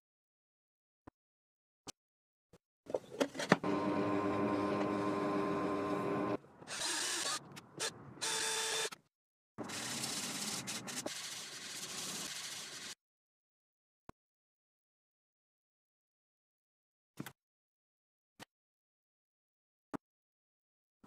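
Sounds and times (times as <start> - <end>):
cordless drill motor whine: 3.6 - 7.4, 8.2 - 8.9.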